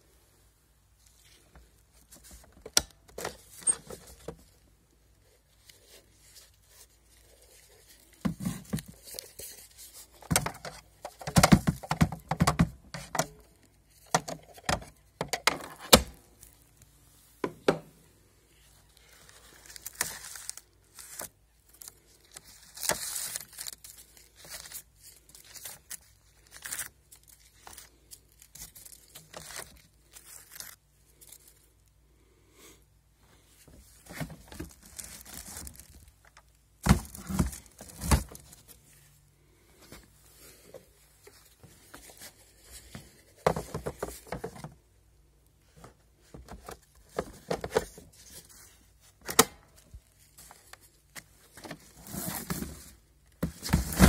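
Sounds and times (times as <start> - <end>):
plastic clicks and knocks: 10.3 - 13.4
paper rustling and tearing: 19.0 - 31.6.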